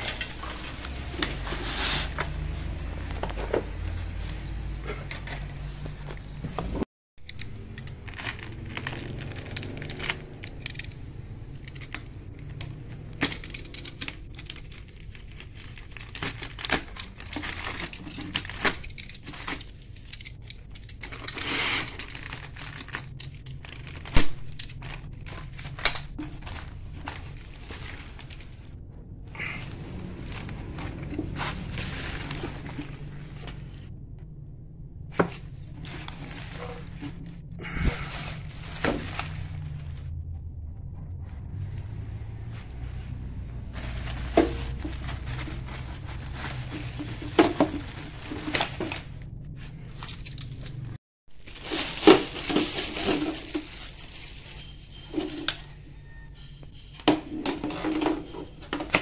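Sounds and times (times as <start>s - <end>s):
plastic wrapping crinkling: 0.0s - 4.5s, 7.3s - 28.8s, 29.4s - 33.8s, 35.6s - 40.1s, 43.7s - 55.5s.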